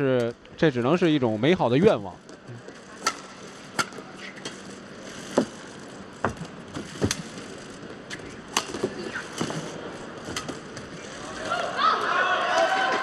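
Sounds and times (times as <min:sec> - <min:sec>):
shoes squeaking on court: 0:03.9 - 0:11.2.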